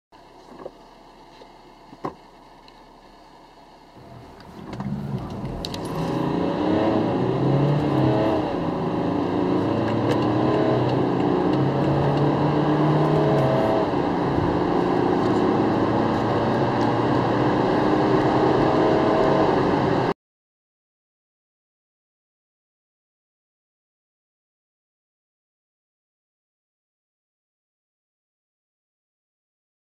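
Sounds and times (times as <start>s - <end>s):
car engine accelerating hard: 4.0s - 20.2s.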